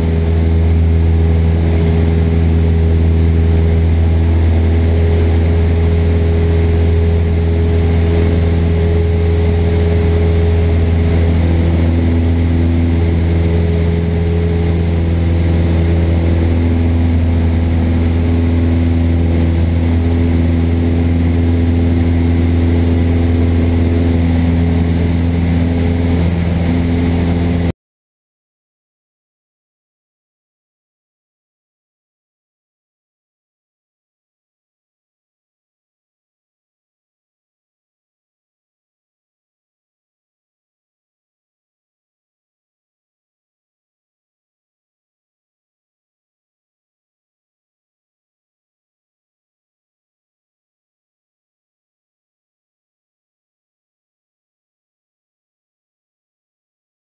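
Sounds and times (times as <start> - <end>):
airplane engine drone in cabin: 0.0 - 27.7.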